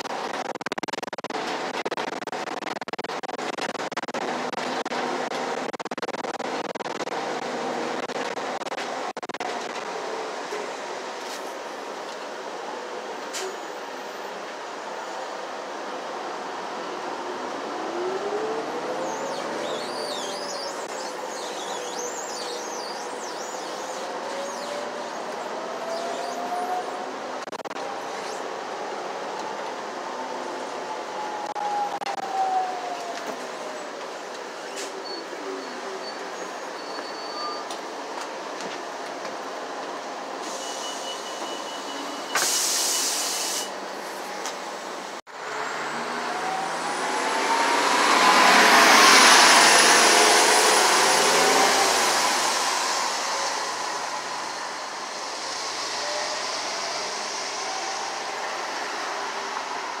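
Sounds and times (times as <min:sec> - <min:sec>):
bus interior rumble: 0:00.0 - 0:32.2, 0:33.1 - 1:00.0
bus pulling away: 0:06.6 - 0:32.8, 0:33.6 - 1:00.0
air hiss burst: 0:42.4 - 0:43.8.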